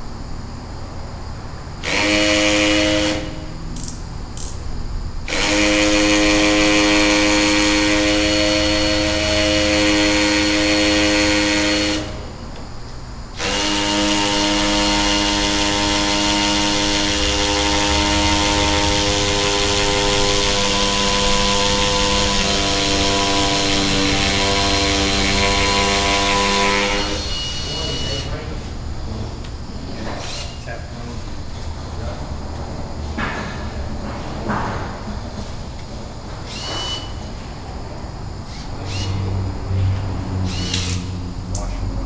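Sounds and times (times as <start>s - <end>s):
power drill boring into brick: 13.4s - 28.3s, 30.2s - 30.6s.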